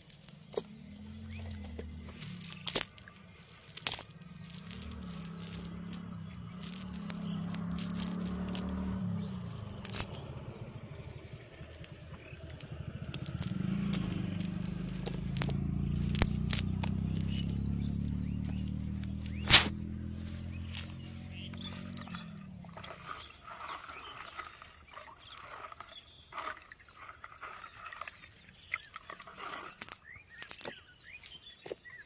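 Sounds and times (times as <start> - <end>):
sharp clicks and crackles: 0.0 - 25.9, 28.7 - 32.0
fishing net rustling and scraping: 0.0 - 31.9
low hum: 0.2 - 24.2.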